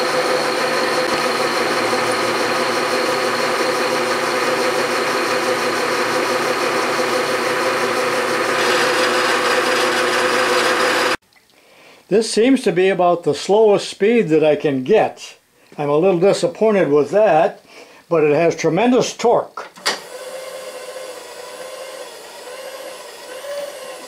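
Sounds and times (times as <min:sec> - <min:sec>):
milling machine cutting metal: 0:00.0 - 0:11.2, 0:20.0 - 0:24.0.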